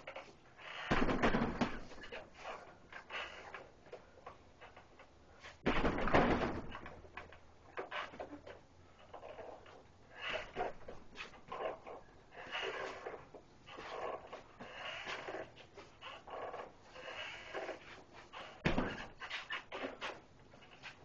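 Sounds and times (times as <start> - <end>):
punches thudding on heavy bag: 18.6 - 19.0.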